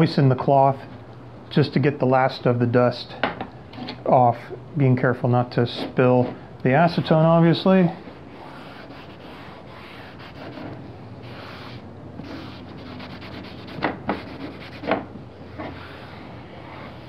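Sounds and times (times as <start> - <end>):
cloth rubbing a surface: 8.0 - 17.0.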